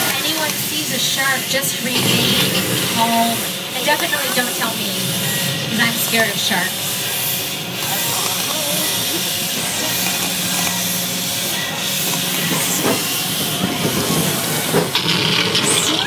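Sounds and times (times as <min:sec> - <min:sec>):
water jets spraying: 0:00.0 - 0:16.0.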